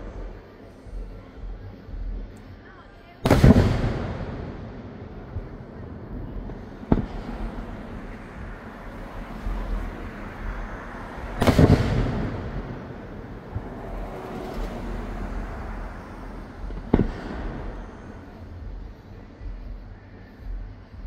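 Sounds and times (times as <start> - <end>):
low background noise: 0.0 - 21.0
firework shell bursting with boom: 3.3 - 4.5, 11.4 - 12.7.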